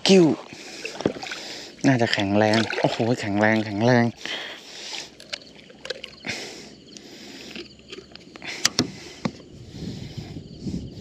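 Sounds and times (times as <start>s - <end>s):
light knocks and clicks on boat: 7.9s - 9.4s.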